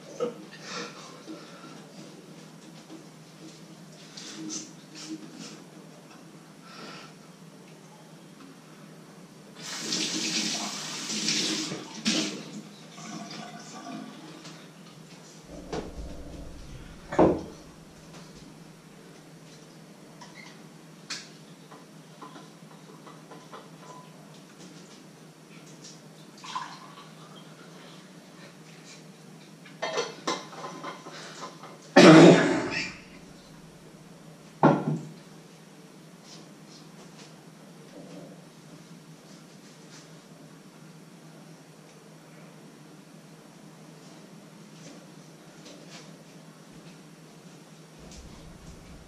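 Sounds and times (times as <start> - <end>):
faint hiss: 9.6 - 12.2
steady low hum: 15.4 - 19.0, 32.4 - 34.4, 48.0 - 49.0
sharp knocks: 15.5 - 18.4.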